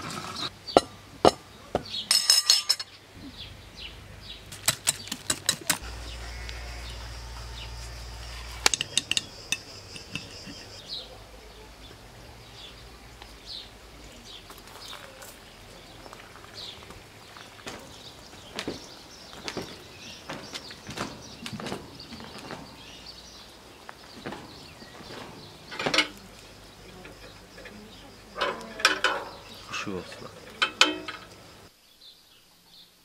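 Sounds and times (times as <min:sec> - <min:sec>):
small birds chirping: 0:00.3 - 0:33.0
spoon clinking against ceramic bowl: 0:02.1 - 0:02.9.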